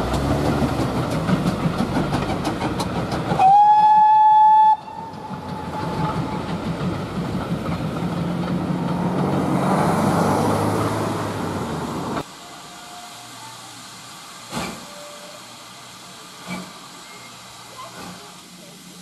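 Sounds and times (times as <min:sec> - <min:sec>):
train coaches rumbling past: 0:00.0 - 0:19.0
steam locomotive whistle: 0:03.4 - 0:06.1, 0:12.4 - 0:13.7, 0:14.6 - 0:15.6.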